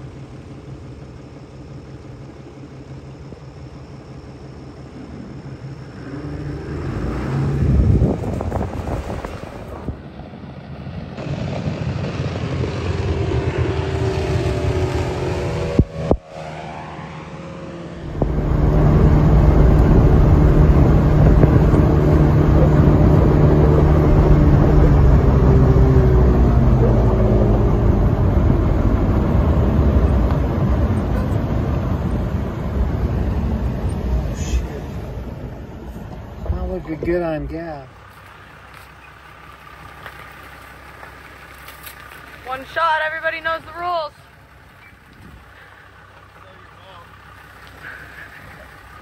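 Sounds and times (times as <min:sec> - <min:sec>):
engine droning: 0:00.0 - 0:49.0.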